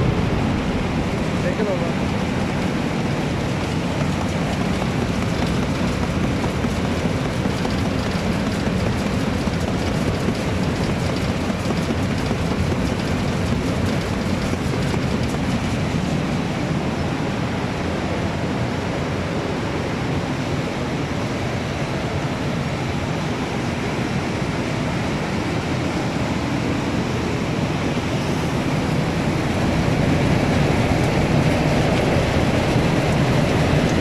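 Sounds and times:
machine rumbling with rushing hiss: 0:00.0 - 0:34.0.

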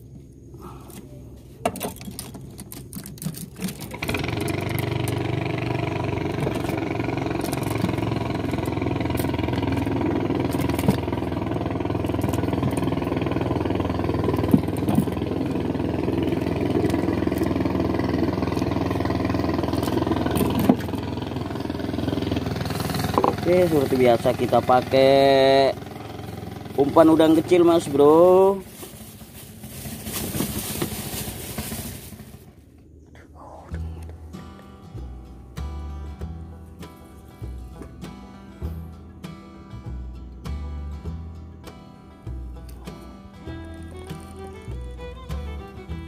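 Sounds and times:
fishing rods clicking and knocking: 0:01.7 - 0:03.9
small boat engine running: 0:02.7 - 0:32.9, 0:39.8 - 0:46.0.

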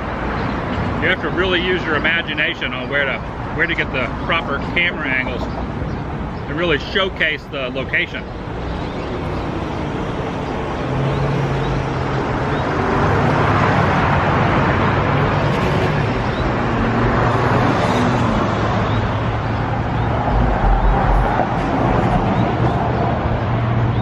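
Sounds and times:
vehicle engine hum: 0:08.2 - 0:24.0.

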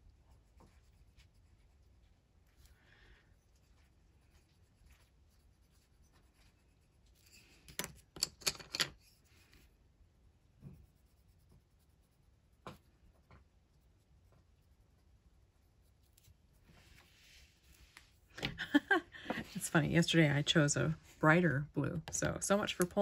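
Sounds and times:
pencil scratching on paper: 0:00.0 - 0:02.7, 0:03.4 - 0:07.5, 0:10.6 - 0:13.0.

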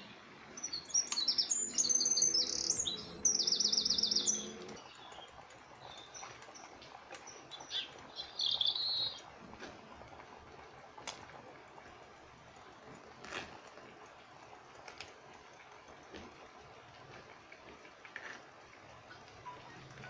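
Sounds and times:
small birds chirping: 0:00.0 - 0:09.3
bird trill: 0:00.6 - 0:05.3, 0:07.3 - 0:09.2.

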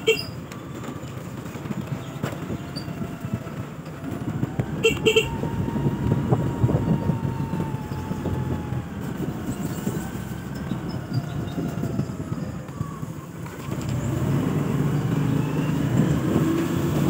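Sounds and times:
motorcycle horn beeps: 0:00.0 - 0:00.4, 0:04.8 - 0:05.4
motorcycle engine and tyre rumble: 0:00.0 - 0:17.0.

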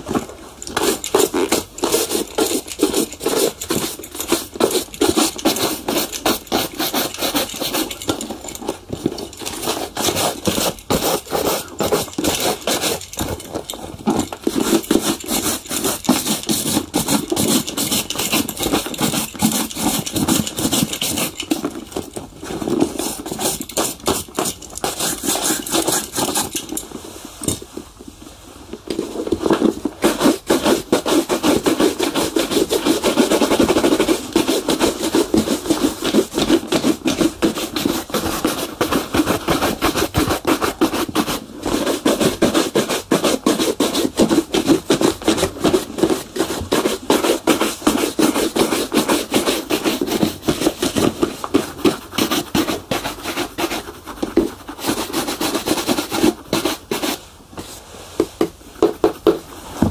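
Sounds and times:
brush rubbing a shoe: 0:00.7 - 0:27.5, 0:29.0 - 0:59.9.

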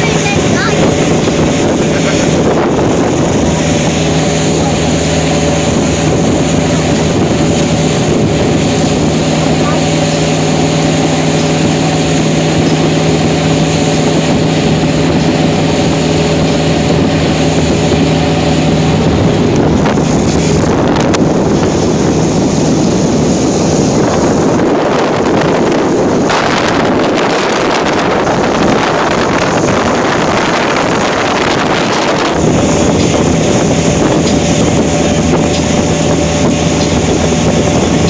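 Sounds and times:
motorboat engine running: 0:00.0 - 0:38.0
water rushing: 0:00.0 - 0:38.0
wind buffeting microphone: 0:00.0 - 0:38.0.

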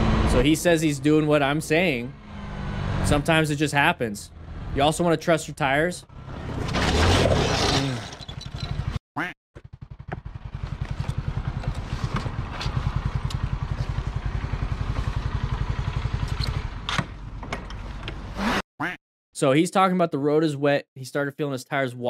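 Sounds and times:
motorcycle scraping along road: 0:00.0 - 0:03.5, 0:06.1 - 0:09.0, 0:09.7 - 0:18.6
motorcycle engine idling: 0:09.6 - 0:18.3.

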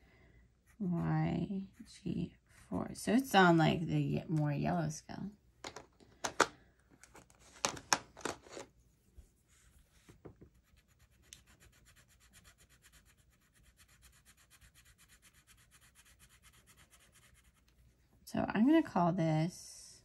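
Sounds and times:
colored pencil scribbling on paper: 0:00.6 - 0:02.4, 0:10.5 - 0:17.8
pencil scrapes and taps: 0:10.2 - 0:12.1.

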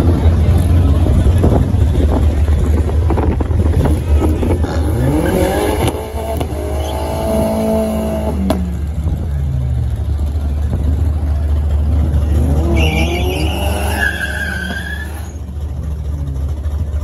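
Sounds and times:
deep rumble: 0:00.0 - 0:05.2
car engines revving: 0:00.0 - 0:17.0.

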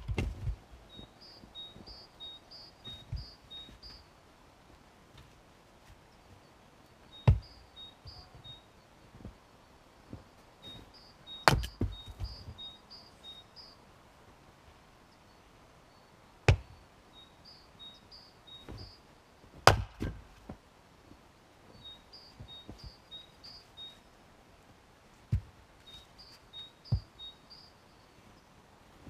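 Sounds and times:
axe chopping firewood: 0:11.4 - 0:12.3, 0:16.5 - 0:16.7, 0:19.6 - 0:20.3.

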